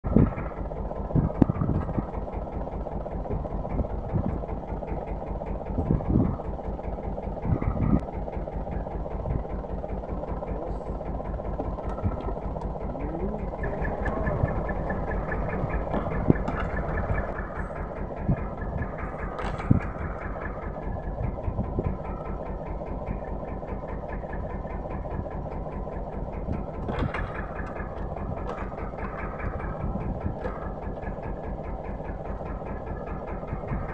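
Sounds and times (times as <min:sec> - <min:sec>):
boat engine idling: 0:00.0 - 0:33.9.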